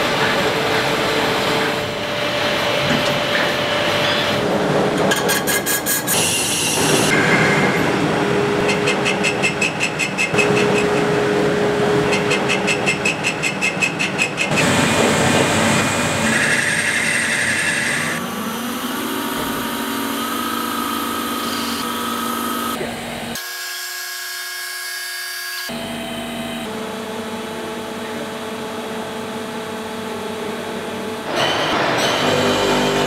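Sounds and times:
lathe cutting metal: 0:00.0 - 0:23.3, 0:30.2 - 0:33.0.

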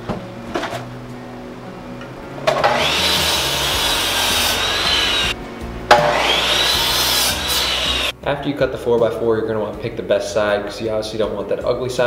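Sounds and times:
miter saw cutting wood: 0:02.5 - 0:08.1.

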